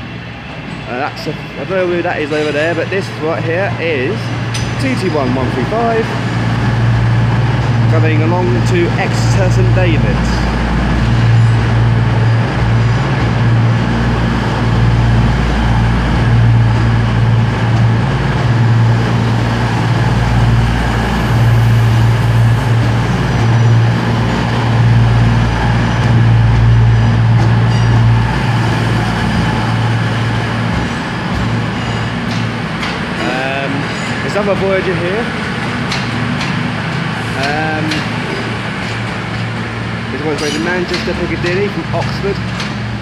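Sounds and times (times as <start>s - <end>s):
train diesel engines droning: 0.0s - 43.0s.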